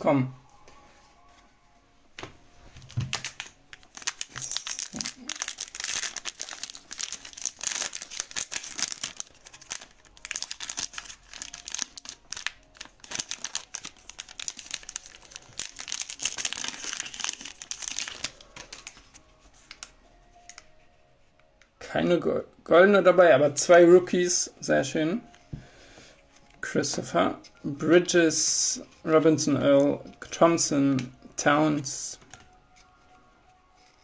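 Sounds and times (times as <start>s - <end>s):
foil wrapper crinkling: 2.8s - 20.6s.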